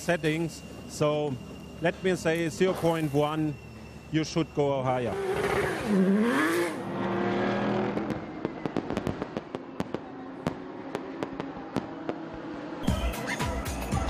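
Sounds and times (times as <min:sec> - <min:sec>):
race car engine revving: 0:05.1 - 0:08.5
fireworks popping and crackling: 0:07.9 - 0:12.2.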